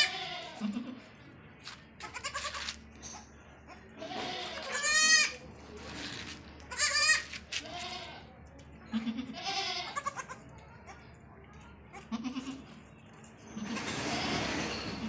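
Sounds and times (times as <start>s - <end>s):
goats bleating: 0.0s - 1.0s, 2.0s - 2.8s, 4.0s - 5.4s, 6.7s - 8.3s, 8.9s - 10.4s.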